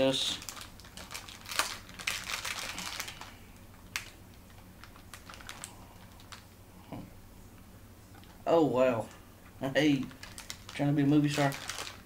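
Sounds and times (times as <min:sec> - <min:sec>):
snack packet crinkling: 0:00.2 - 0:06.5, 0:09.9 - 0:12.0.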